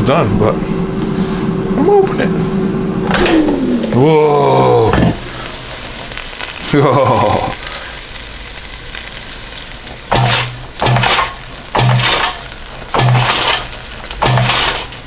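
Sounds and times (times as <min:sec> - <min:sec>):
sizzling hiss: 0:03.2 - 0:15.0
food rattling in fryer basket: 0:10.0 - 0:15.0.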